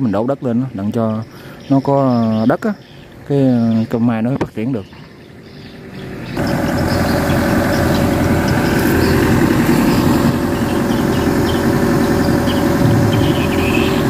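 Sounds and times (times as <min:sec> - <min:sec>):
excavator diesel engine running: 0:05.2 - 0:14.0.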